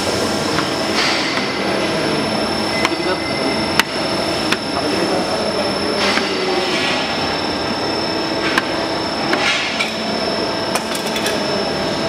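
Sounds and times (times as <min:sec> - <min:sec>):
duct forming machine clattering: 0:10.7 - 0:11.8.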